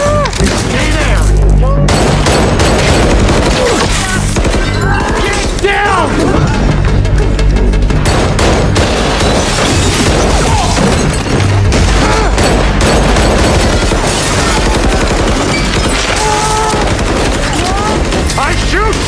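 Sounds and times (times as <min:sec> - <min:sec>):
rapid pistol gunfire: 0:01.9 - 0:05.8, 0:07.9 - 0:19.0.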